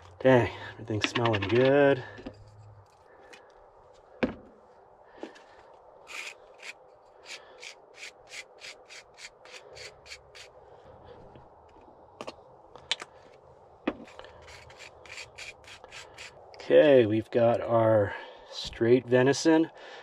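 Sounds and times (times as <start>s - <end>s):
spreader scraping buns: 6.0s - 10.6s, 14.0s - 16.4s.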